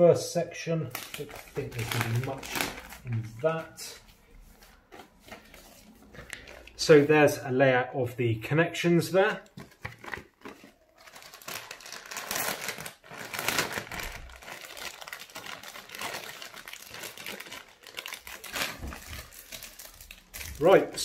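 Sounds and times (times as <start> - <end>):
plastic bags crinkling: 0.9 - 4.0, 4.9 - 7.0, 9.5 - 21.0.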